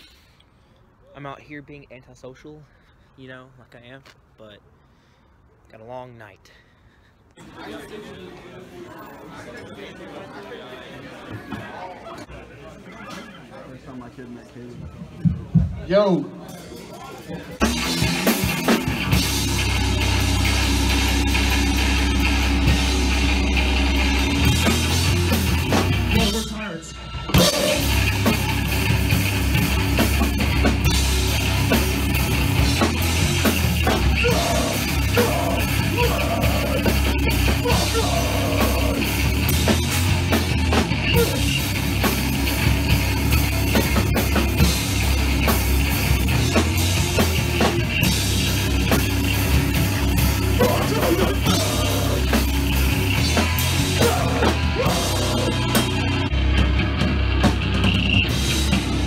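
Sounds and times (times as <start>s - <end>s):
drum kit: 17.6s - 59.0s
heavy rock band playing: 17.6s - 59.0s
electric guitar: 27.2s - 59.0s.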